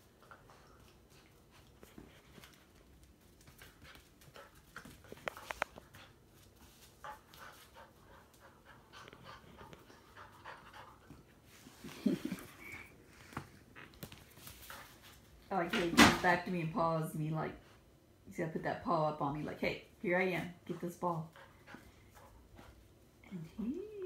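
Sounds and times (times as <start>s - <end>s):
puppy panting: 3.4s - 11.4s.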